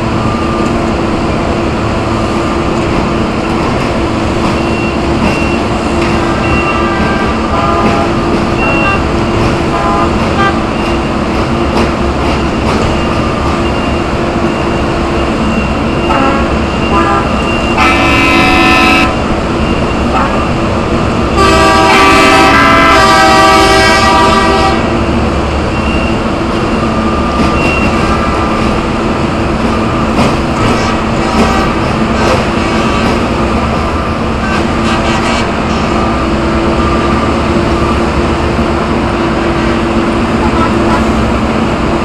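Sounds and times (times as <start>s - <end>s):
rail machine engine running: 0.0s - 42.0s
horn blasts: 6.3s - 9.1s, 9.7s - 10.7s, 16.1s - 19.2s, 21.4s - 24.9s, 30.8s - 31.8s, 34.4s - 35.9s, 40.4s - 41.2s.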